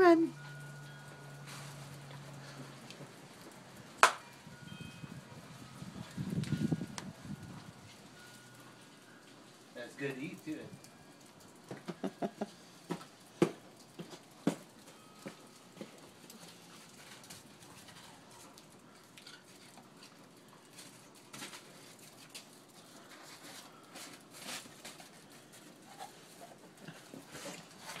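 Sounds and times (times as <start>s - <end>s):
low steady hiss: 7.7s - 13.8s.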